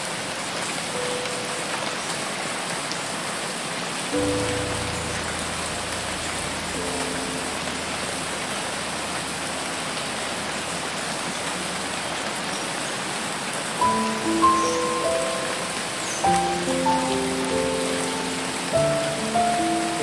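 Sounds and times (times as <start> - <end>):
heavy rain on water: 0.0 - 20.0
faint held music notes: 4.2 - 12.5, 13.8 - 20.0.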